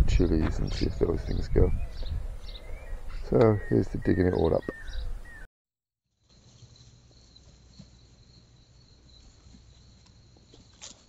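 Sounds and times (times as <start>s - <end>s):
crickets trilling: 6.2s - 11.0s.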